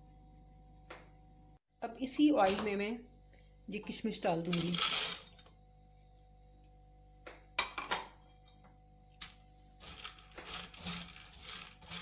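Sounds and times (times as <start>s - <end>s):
spatula scraping and stirring: 9.7s - 12.0s.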